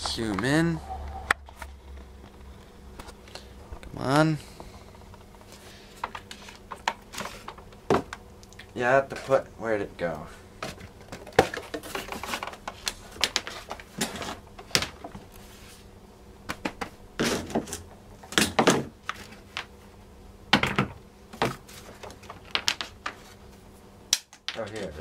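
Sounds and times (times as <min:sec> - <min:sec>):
hands rummaging among plastic parts: 0:10.6 - 0:15.2.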